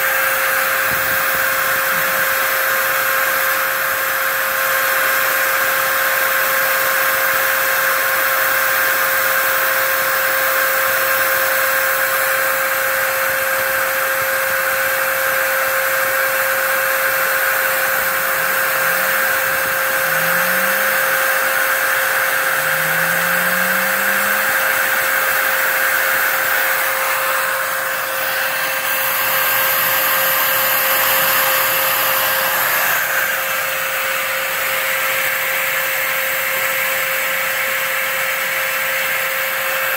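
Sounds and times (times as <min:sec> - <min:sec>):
router spindle whining: 0:00.0 - 0:39.9
faint short rising hums: 0:18.1 - 0:25.8.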